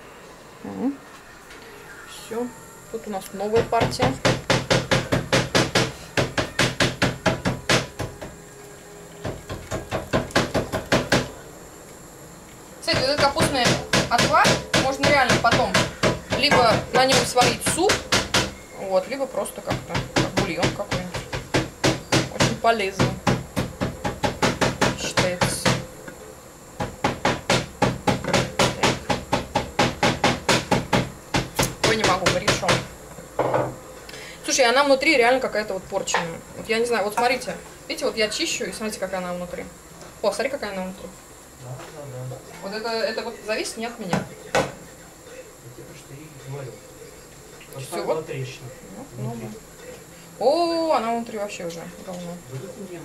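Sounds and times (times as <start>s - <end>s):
rapid sharp knocking: 3.6s - 8.3s, 9.2s - 11.3s, 12.9s - 18.6s, 19.7s - 25.8s, 26.8s - 32.9s.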